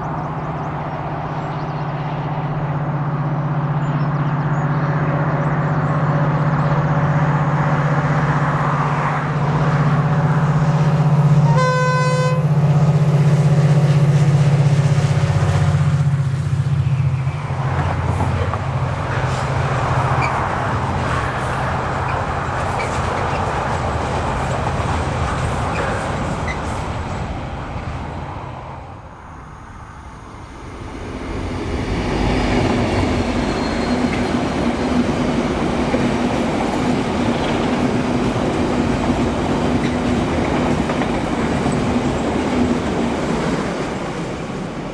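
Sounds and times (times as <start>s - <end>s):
diesel locomotive engine humming: 0.0s - 44.9s
wagons rumbling on rails: 0.0s - 44.9s
train horn blast: 11.4s - 12.6s.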